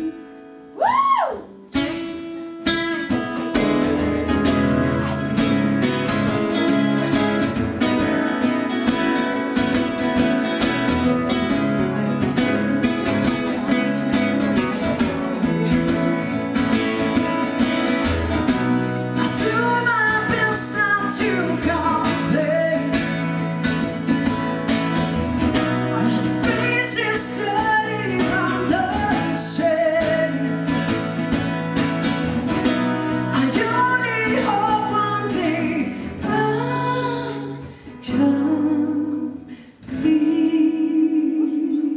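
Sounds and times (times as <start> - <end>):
person singing: 0.0 - 2.0, 19.0 - 23.4, 25.6 - 30.7, 33.1 - 41.9
acoustic guitars strumming: 0.0 - 41.9.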